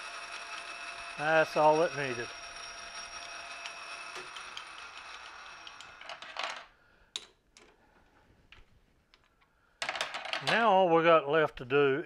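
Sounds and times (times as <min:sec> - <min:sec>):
metal lathe whining: 0:00.0 - 0:06.1.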